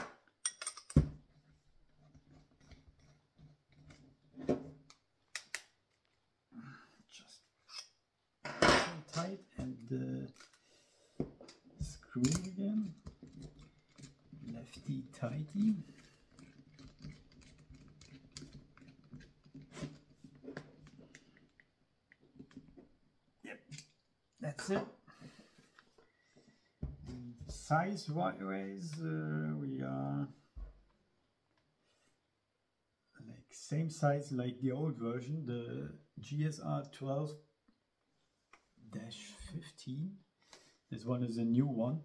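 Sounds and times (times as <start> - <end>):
metal tool clinking in drill chuck: 0.4 - 1.0.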